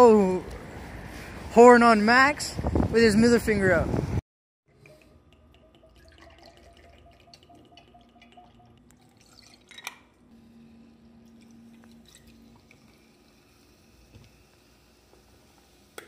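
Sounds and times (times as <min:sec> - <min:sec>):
liquid trickling and dripping: 0:04.7 - 0:16.0
ice and glass clinking: 0:05.3 - 0:10.2.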